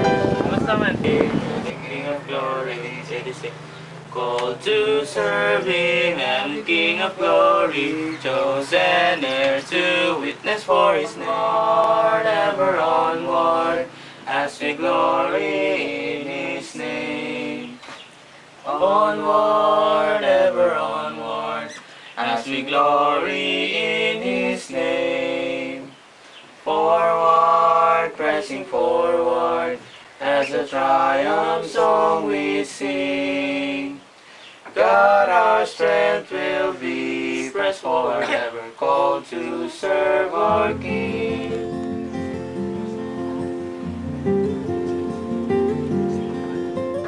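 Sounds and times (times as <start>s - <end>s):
instrumental music: 0.0s - 1.7s, 40.5s - 47.0s
person singing: 0.0s - 3.6s, 6.5s - 17.8s, 38.1s - 43.0s.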